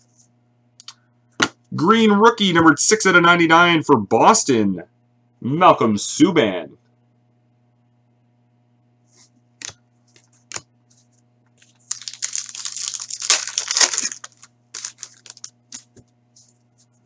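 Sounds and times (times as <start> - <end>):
cards rustling: 9.6 - 17.0
foil wrapper tearing and crinkling: 11.6 - 16.0.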